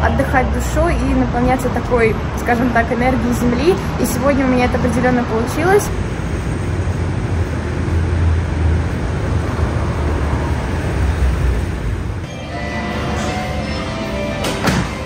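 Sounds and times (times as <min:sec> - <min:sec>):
vehicle running low rumble: 0:00.0 - 0:12.3.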